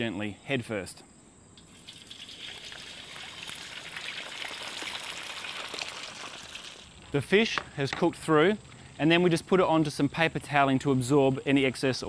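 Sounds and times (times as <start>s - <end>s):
fish sizzling in hot oil: 1.6s - 7.0s.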